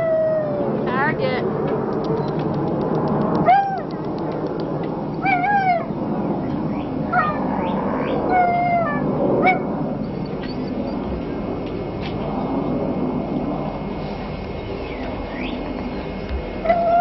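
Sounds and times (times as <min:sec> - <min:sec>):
puppy whimpering: 0:03.4 - 0:04.0, 0:05.2 - 0:05.9, 0:07.1 - 0:11.2, 0:16.6 - 0:17.0.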